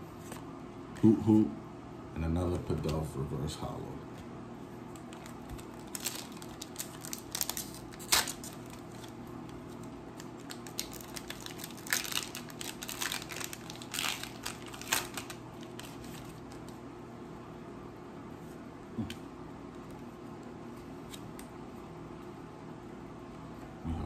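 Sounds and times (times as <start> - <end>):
foil wrappers crinkling: 4.9 - 16.8
trading cards rustling: 5.0 - 16.8.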